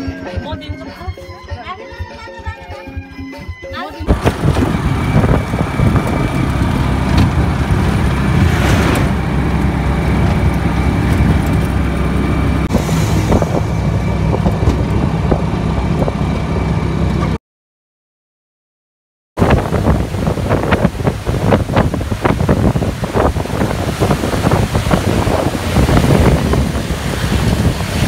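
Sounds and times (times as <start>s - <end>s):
road noise: 4.1s - 17.4s, 19.4s - 28.0s
vehicle engine droning: 4.1s - 17.4s, 19.5s - 28.0s.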